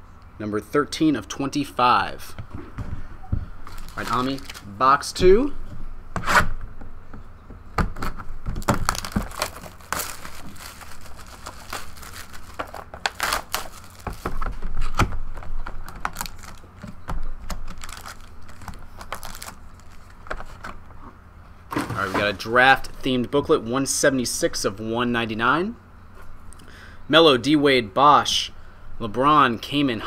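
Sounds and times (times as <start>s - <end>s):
plastic shrink-wrap crinkling and tearing: 3.7s - 4.7s, 8.6s - 16.9s, 17.5s - 20.6s
cardboard box being handled: 8.6s - 15.0s.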